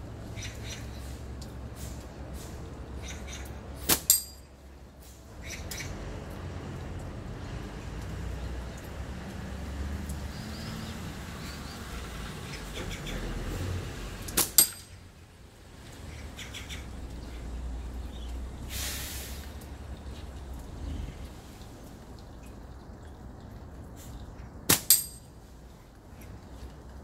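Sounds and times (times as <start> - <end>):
rain: 0.0 - 27.0
slingshot cracks: 3.8 - 4.4, 14.3 - 14.9, 24.7 - 25.2
short rush of hiss: 18.7 - 19.6.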